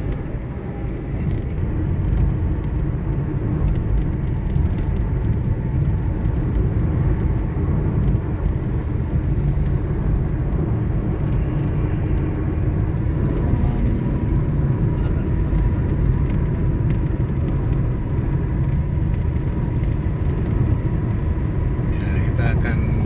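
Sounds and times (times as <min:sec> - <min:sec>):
low engine hum: 0:00.0 - 0:23.0.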